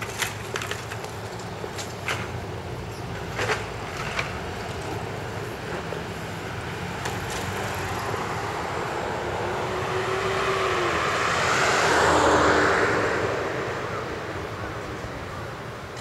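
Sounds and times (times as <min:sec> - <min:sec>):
vehicle passing by: 0:04.5 - 0:15.7.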